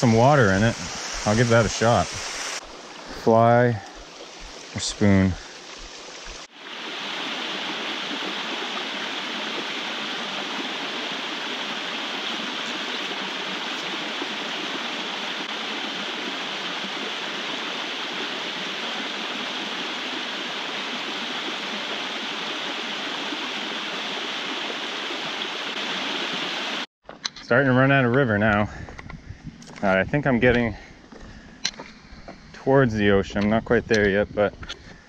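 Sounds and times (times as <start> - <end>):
brook running over rocks: 0.0 - 26.9.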